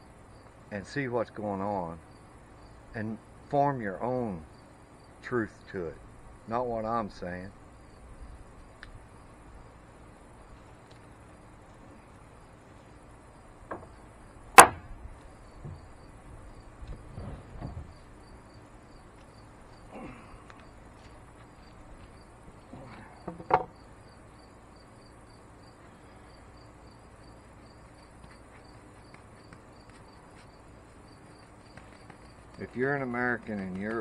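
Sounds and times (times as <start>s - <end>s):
insects chirping: 0.0s - 34.0s
board and tools clattering: 23.2s - 23.7s.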